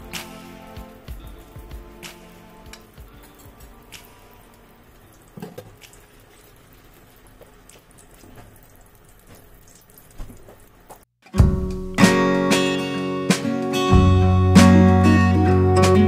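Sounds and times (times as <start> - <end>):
acoustic guitar music: 0.0 - 5.0, 11.2 - 16.0.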